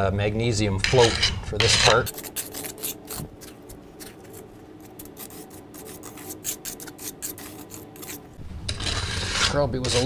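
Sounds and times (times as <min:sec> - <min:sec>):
float scraping wet concrete: 0:00.8 - 0:03.2, 0:05.3 - 0:10.0.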